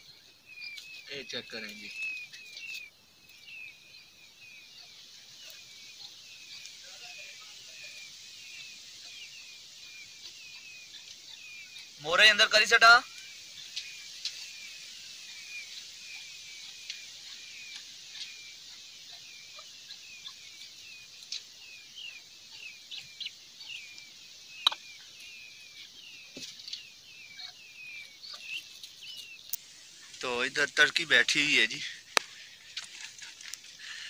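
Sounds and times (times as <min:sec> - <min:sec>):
chicks peeping: 0:00.0 - 0:34.0
faint clicks: 0:32.1 - 0:34.0.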